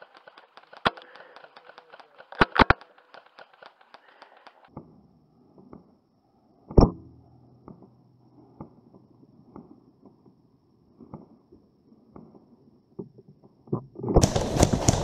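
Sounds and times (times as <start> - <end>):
faint clicks and knocks: 0.0 - 4.8.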